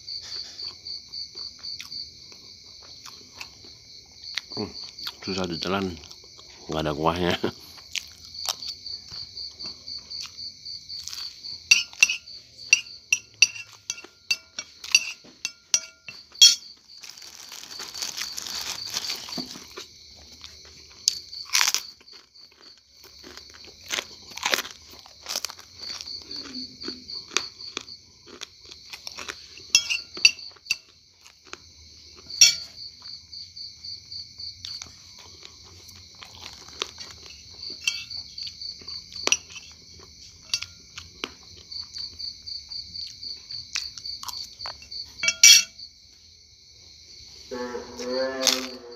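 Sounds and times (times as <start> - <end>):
crickets chirping: 0.0 - 48.9
chewing: 1.4 - 3.7, 7.6 - 10.4, 17.0 - 33.1, 34.6 - 42.2, 43.0 - 44.8
spoon scraping ceramic plate: 11.7 - 16.6, 29.6 - 30.9, 32.4 - 32.7, 37.2 - 38.4, 39.3 - 39.8, 45.2 - 45.7.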